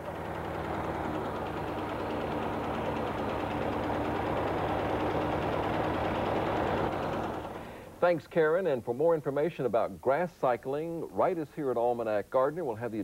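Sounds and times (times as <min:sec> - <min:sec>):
lawn mower cutting grass: 0:00.0 - 0:08.0.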